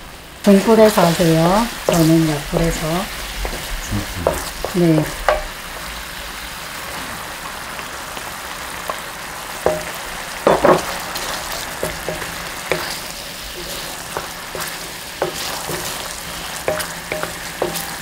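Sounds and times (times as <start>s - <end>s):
sauce bubbling and sizzling in pan: 0.0s - 18.0s
spatula scraping pan: 0.9s - 5.5s, 9.7s - 18.0s.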